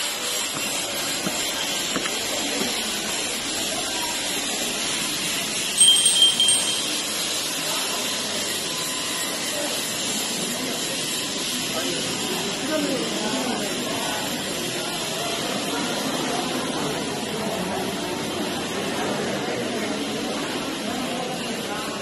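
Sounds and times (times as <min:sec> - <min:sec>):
high ringing tone: 0:05.8 - 0:07.8.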